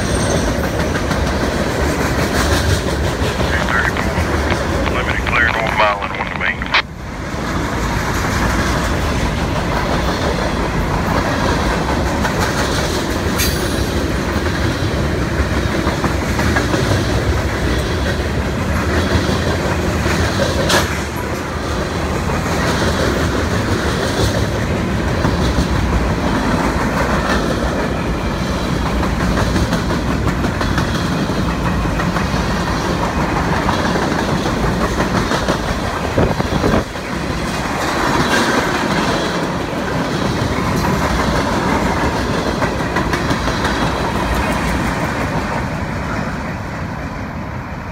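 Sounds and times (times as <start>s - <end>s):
steel wheels on rails: 0.0s - 4.9s.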